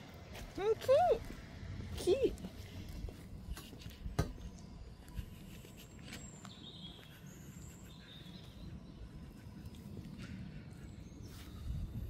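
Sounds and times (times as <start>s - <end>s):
faint high bird calls: 5.7s - 12.0s.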